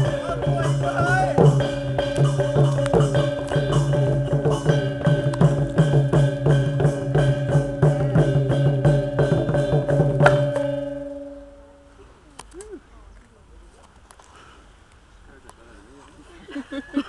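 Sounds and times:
music with fast percussive beat: 0.0s - 11.5s.

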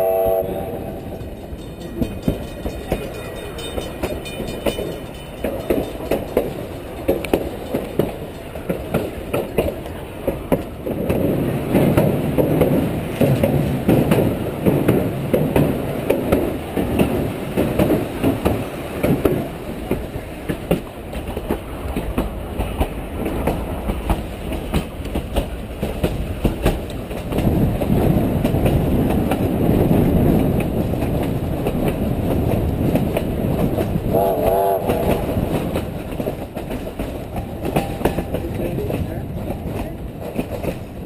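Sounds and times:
brief wavering tone: 0.0s - 1.6s
steam train rumbling: 0.0s - 41.0s
wheels clicking over rail joints: 0.9s - 41.0s.

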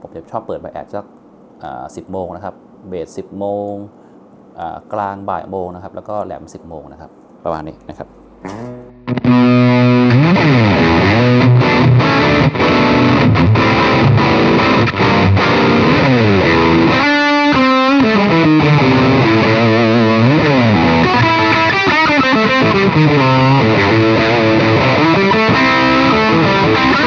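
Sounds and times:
distorted electric guitar riffs: 8.3s - 27.0s.

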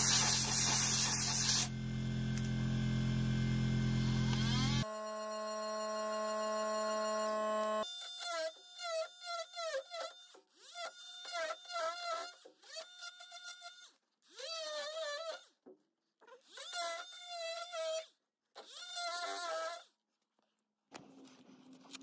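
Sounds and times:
oscillating multi-tool buzzing: 0.0s - 15.5s.

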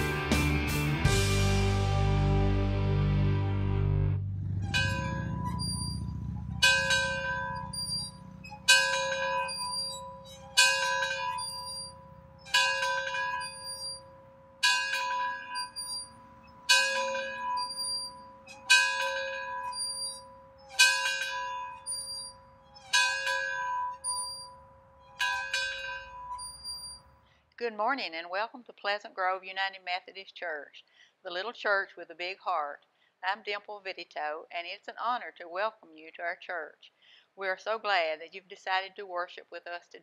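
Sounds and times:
church bell tolling: 4.4s - 26.5s.

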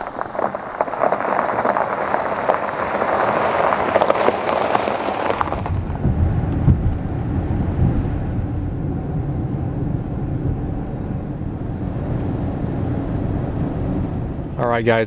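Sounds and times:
tyres crunching over gravel: 0.0s - 7.0s
road noise inside vehicle: 0.0s - 15.0s.

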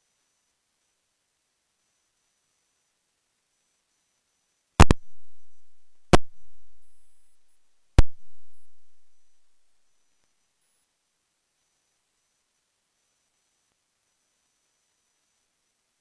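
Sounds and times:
loud thumps: 4.8s - 7.3s, 8.0s - 9.3s
low boom: 4.8s - 7.3s, 8.0s - 9.3s.

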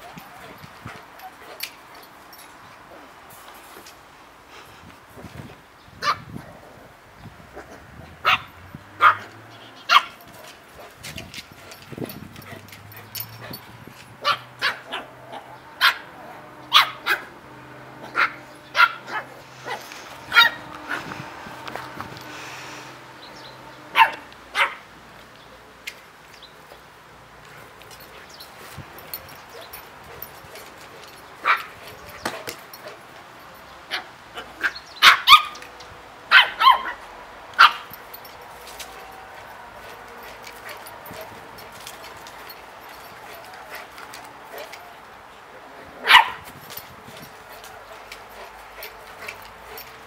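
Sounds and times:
puppies yapping: 11.6s - 24.8s.

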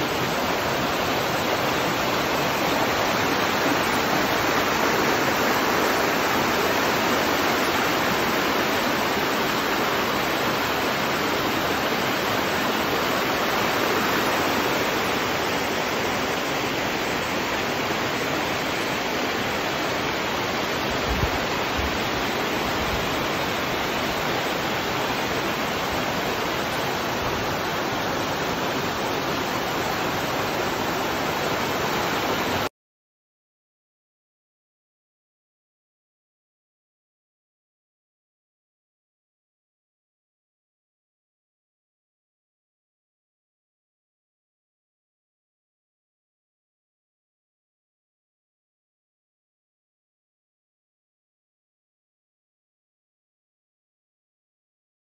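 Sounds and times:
waterfall rushing over rocks: 0.0s - 32.7s.

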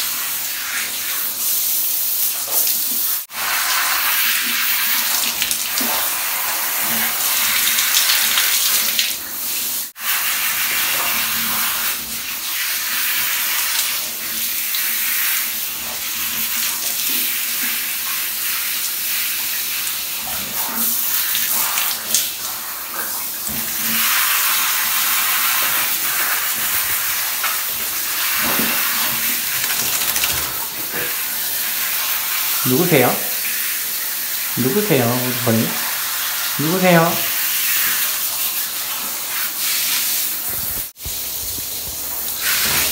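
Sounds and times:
shower head spraying water: 24.0s - 42.9s.

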